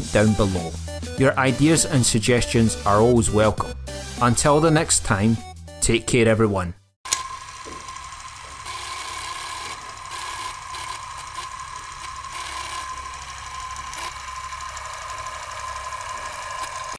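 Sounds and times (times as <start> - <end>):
film projector rattling and whining: 7.1 - 16.9.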